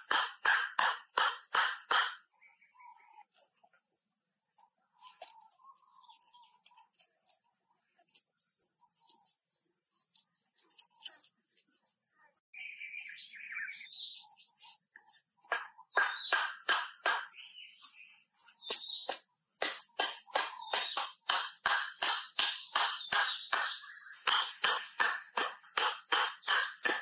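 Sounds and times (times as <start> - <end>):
mallet knocking stake: 0.0 - 2.2, 15.5 - 17.3, 18.7 - 27.0
insects buzzing: 8.0 - 13.1, 13.7 - 27.0.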